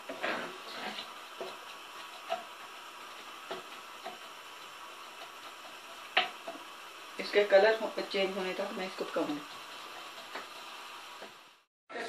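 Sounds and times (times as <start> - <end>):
onion sizzling in oil: 0.0 - 11.7
wooden spoon tapping pan: 1.3 - 6.7, 7.7 - 11.4.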